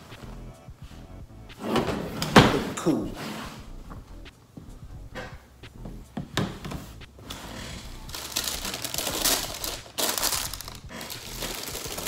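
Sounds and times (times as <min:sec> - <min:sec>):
tissue paper rustling: 0:08.1 - 0:12.0.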